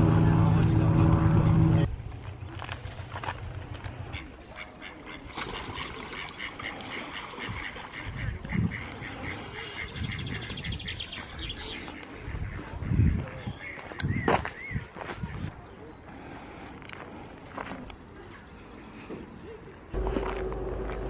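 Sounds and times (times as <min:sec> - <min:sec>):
ducks calling: 0:04.1 - 0:15.4.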